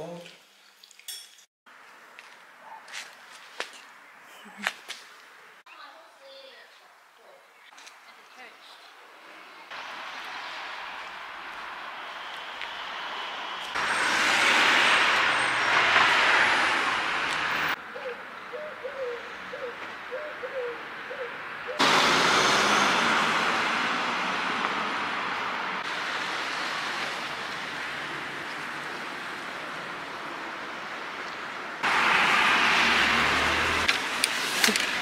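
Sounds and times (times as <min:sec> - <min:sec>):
cars passing: 0:09.2 - 0:35.0.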